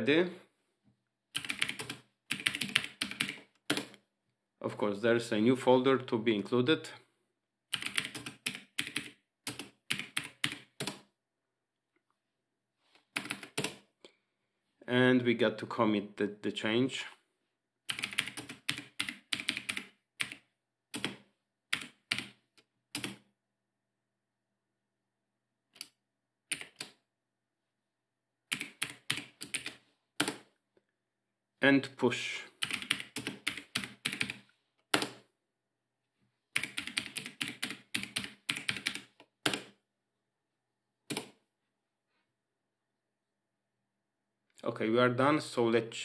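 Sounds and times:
computer keyboard typing: 1.3 - 4.0, 7.7 - 11.0, 13.2 - 13.8, 17.9 - 23.2, 26.5 - 27.0, 28.5 - 30.4, 32.6 - 35.2, 36.6 - 39.7.

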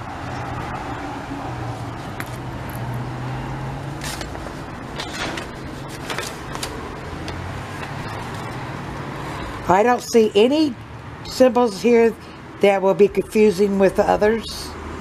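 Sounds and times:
paper and plastic wrapping rustling: 4.0 - 6.9.

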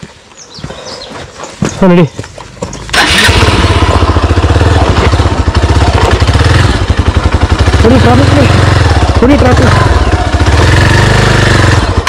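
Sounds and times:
dirt bike engine revving: 2.7 - 12.0.

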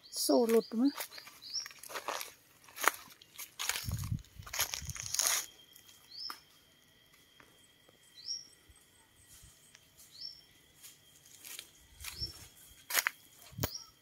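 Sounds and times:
bird chirping: 0.0 - 2.2, 5.3 - 6.6, 7.5 - 10.7, 11.8 - 12.6, 13.2 - 14.0.

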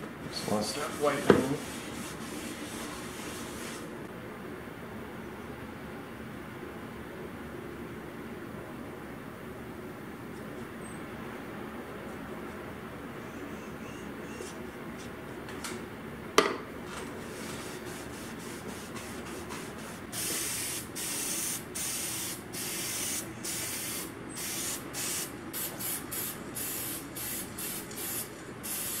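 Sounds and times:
aerosol spray can hissing: 17.7 - 29.0.

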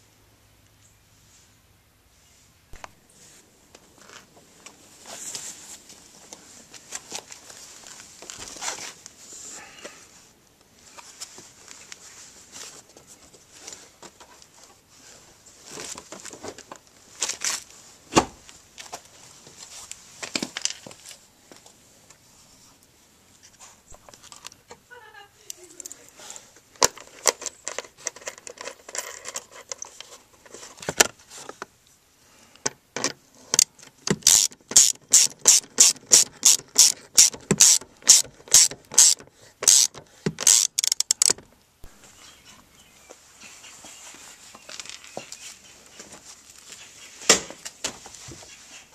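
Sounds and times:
socket ratchet clicking: 33.6 - 41.3.

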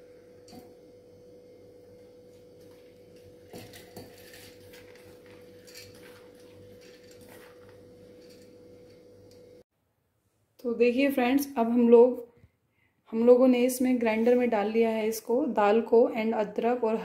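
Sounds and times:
faint hum: 0.0 - 13.9
lentils scraping against steel: 3.6 - 9.0.

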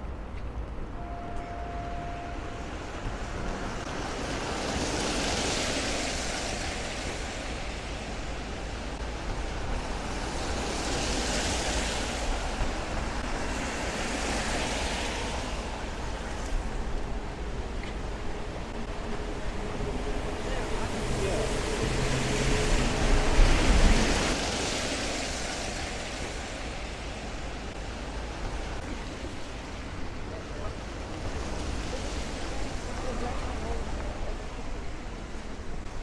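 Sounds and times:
low traffic rumble: 0.0 - 36.0
tyres hissing on wet road: 1.9 - 35.9.

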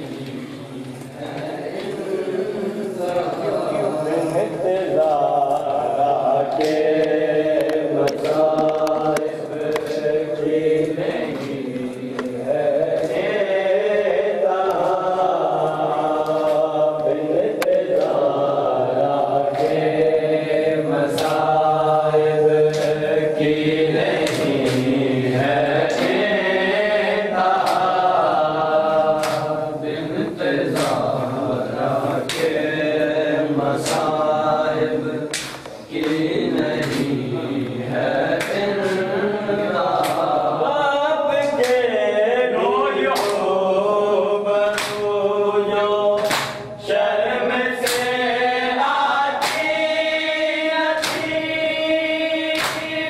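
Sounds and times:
men chanting a lament: 0.0 - 53.0
hand slaps on chest: 29.2 - 29.5, 35.3 - 36.2, 43.1 - 43.4, 44.7 - 45.0, 46.2 - 46.7, 49.4 - 49.7, 51.0 - 51.4, 52.6 - 52.9.

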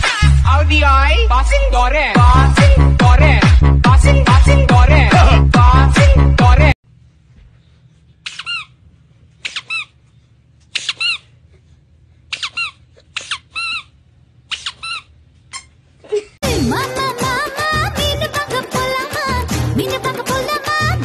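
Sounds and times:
loud music: 0.0 - 6.8, 16.4 - 21.0
high-pitched squeaks: 12.3 - 15.8.

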